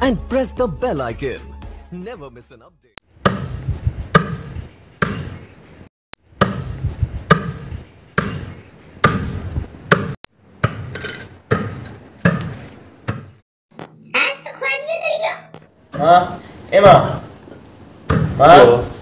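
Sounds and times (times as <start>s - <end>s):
pestle pounding grain in mortar: 6.4s - 13.4s.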